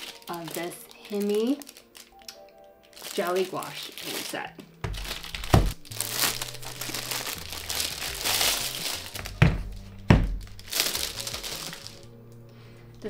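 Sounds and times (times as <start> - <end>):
plastic wrapping crinkling: 0.0 - 13.0.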